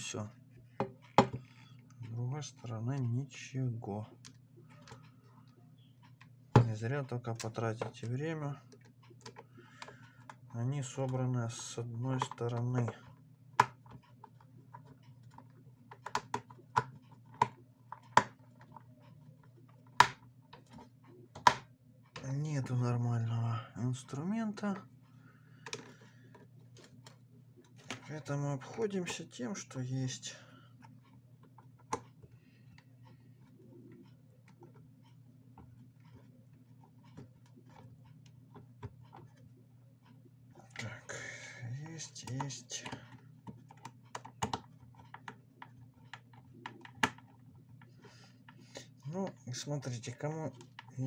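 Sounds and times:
screwdriver clicking on plastic: 0:13.6 - 0:18.8, 0:42.2 - 0:47.4.

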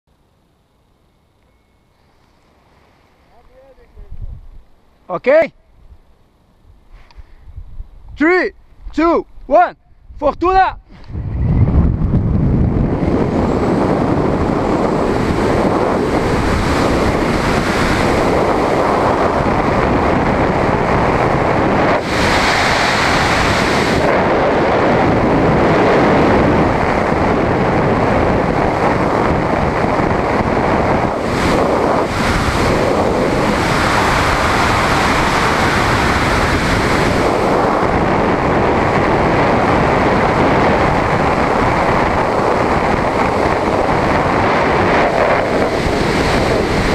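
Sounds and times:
air rushing over microphone: 0:09.5 - 0:46.9.

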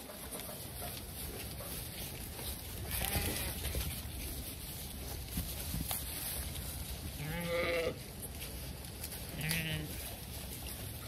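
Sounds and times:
sheep bleating: 0:02.9 - 0:03.6, 0:07.2 - 0:08.0, 0:09.3 - 0:10.0.

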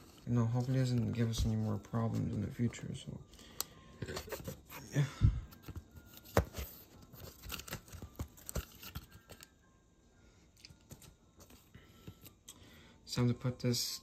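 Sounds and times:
hands handling cardboard: 0:04.0 - 0:04.9, 0:05.5 - 0:09.5.

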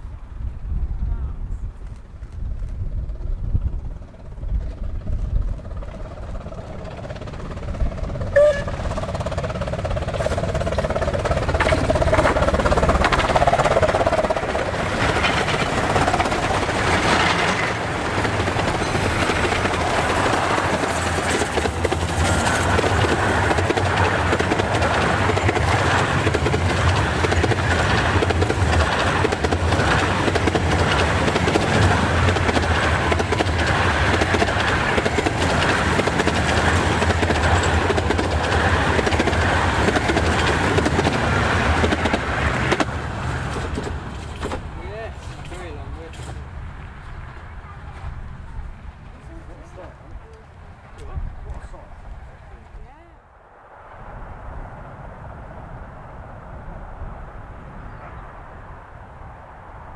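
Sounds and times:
wheels clattering over rail joints: 0:05.6 - 0:47.3.

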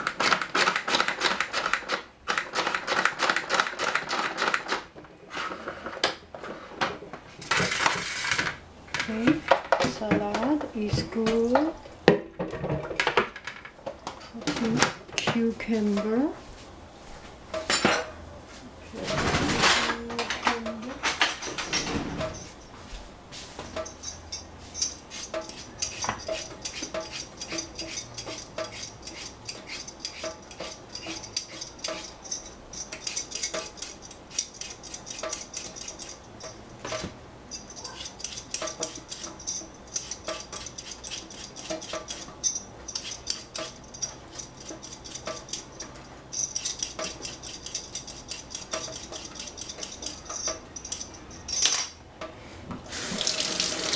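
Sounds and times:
peeler scraping a cucumber: 0:24.8 - 0:36.6, 0:37.5 - 0:51.1.

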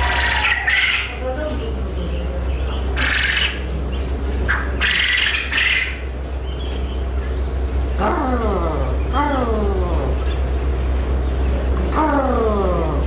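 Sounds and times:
quail harsh calls: 0:00.0 - 0:01.2, 0:02.6 - 0:07.4
steady low hum: 0:00.0 - 0:13.0.

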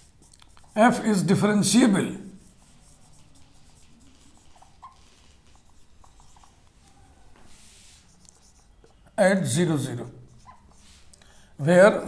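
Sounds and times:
marker scratching on whiteboard: 0:00.0 - 0:11.2
marker squeaks: 0:02.3 - 0:09.1, 0:10.2 - 0:11.1.

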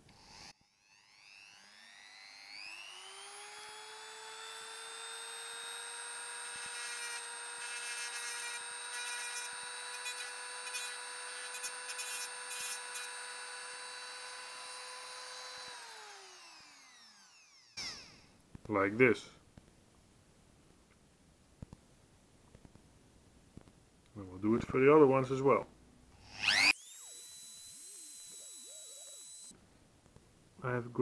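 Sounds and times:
rotary tool whining: 0:00.0 - 0:18.4, 0:26.2 - 0:29.5
cutting disc grinding metal: 0:00.1 - 0:18.2, 0:26.2 - 0:29.5.

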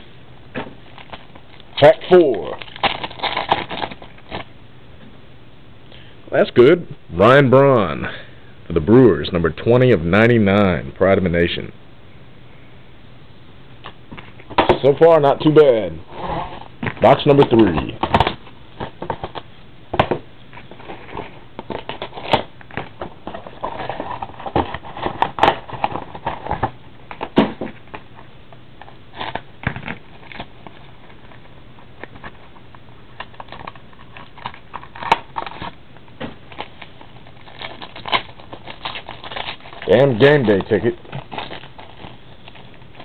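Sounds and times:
cellophane crinkling and tearing: 0:00.8 - 0:04.5, 0:20.6 - 0:43.0.

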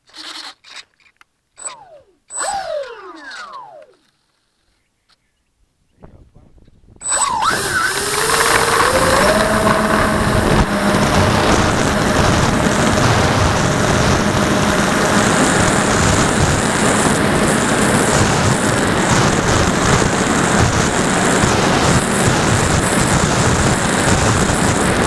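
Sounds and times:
model plane motor whine: 0:01.6 - 0:04.1, 0:07.0 - 0:25.0
propeller noise: 0:01.6 - 0:04.1, 0:07.0 - 0:25.0
rushing wind: 0:06.0 - 0:25.0.

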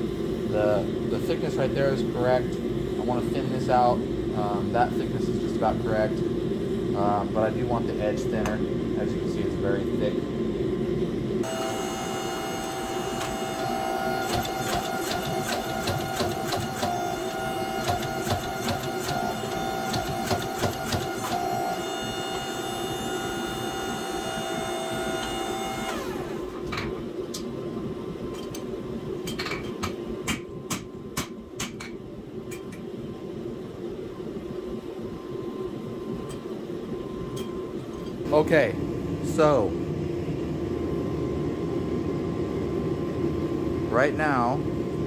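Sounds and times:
power hammer blows: 0:11.4 - 0:26.2
power hammer motor whine: 0:11.4 - 0:27.4.

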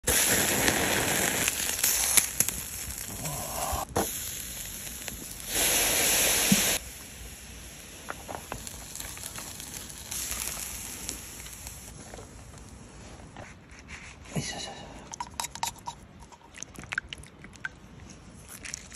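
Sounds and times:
meat sizzling on a grill: 0:00.0 - 0:12.0
charcoal crackling and popping: 0:00.0 - 0:13.6.

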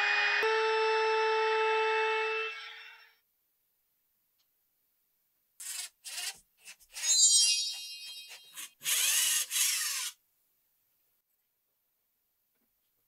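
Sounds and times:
screw squeaking: 0:05.6 - 0:10.2
screwdriver turning screw into wood: 0:05.6 - 0:10.2.

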